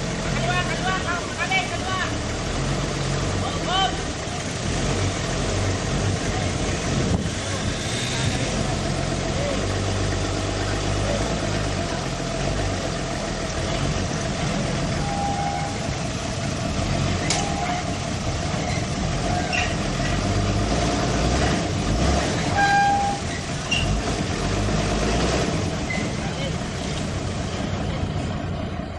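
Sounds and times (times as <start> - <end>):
forklift engine running: 0.0 - 28.9
short high squeaks: 18.6 - 20.2, 22.5 - 24.0, 25.9 - 26.2.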